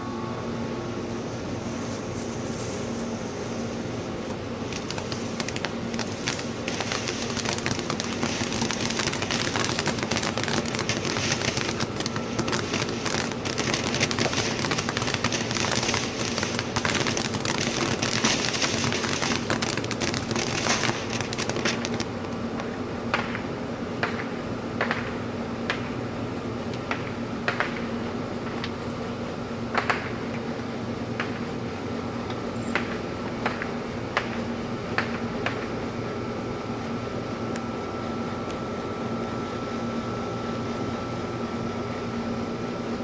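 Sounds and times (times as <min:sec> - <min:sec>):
firework fountain hissing and crackling: 0:01.1 - 0:22.2
sharp firework pops: 0:04.6 - 0:22.1, 0:23.1 - 0:26.0, 0:26.8 - 0:28.8, 0:29.7 - 0:30.4, 0:31.2 - 0:31.5, 0:32.7 - 0:35.8.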